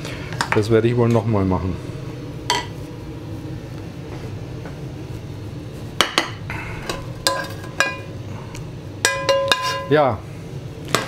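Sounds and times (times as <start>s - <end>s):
steady low hum: 0.0s - 11.0s
metal utensils clinking on pan: 6.9s - 8.1s, 9.0s - 10.0s.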